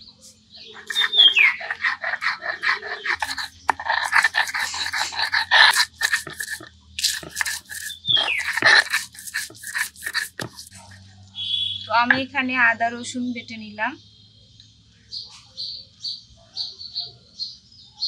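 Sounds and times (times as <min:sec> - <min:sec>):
stone roller crushing garlic: 0:00.8 - 0:10.8.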